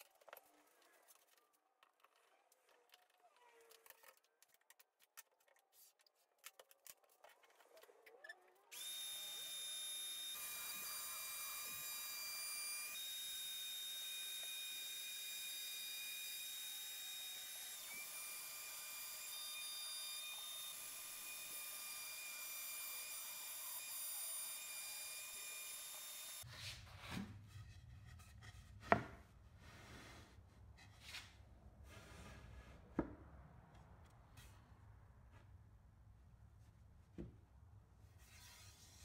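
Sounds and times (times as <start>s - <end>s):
router whining cutting plywood: 8.7s - 26.4s.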